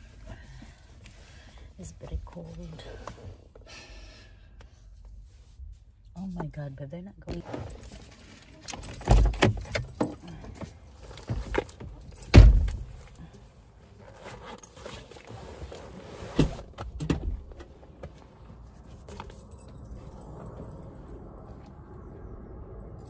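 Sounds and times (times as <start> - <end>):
rustling and clicks in car: 4.6 - 21.6.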